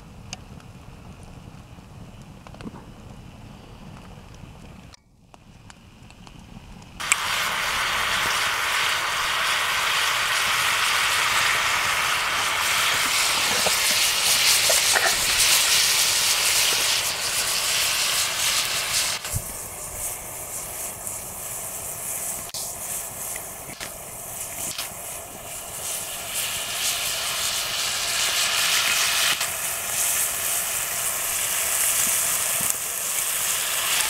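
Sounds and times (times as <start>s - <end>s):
meat sizzling in a pan: 7.0s - 34.0s.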